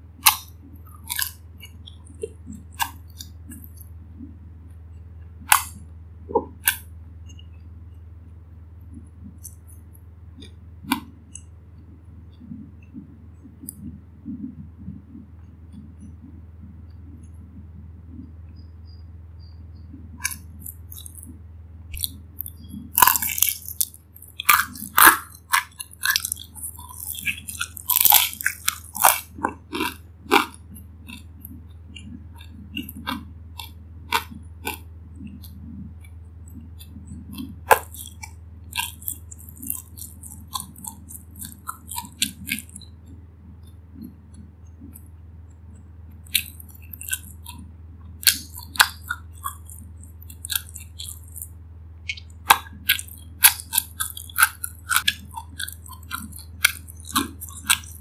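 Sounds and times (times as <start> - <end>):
steady low hum: 0.0 - 58.0
close-up chewing: 0.2 - 4.4, 8.9 - 16.4, 19.4 - 58.0
loud crisp crunches: 21.9 - 31.2.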